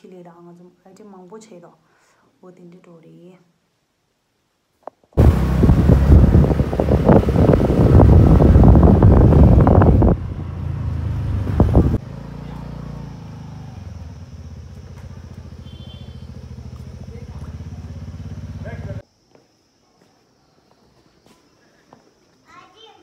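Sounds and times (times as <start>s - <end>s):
wind buffeting microphone: 5.2s - 12.0s
low engine idle: 5.2s - 19.0s
motorcycle engine running: 5.2s - 19.0s.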